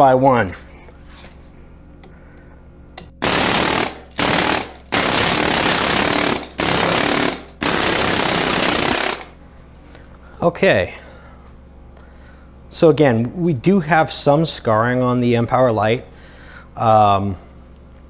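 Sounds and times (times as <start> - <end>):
low background hum: 0.0 - 18.0
air hammer hammering: 3.0 - 9.4.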